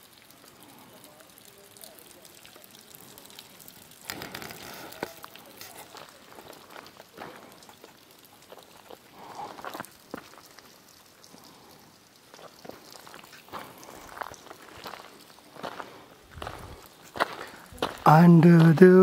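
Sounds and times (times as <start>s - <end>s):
faint footsteps crunching on ground: 4.0s - 10.8s, 12.3s - 19.0s.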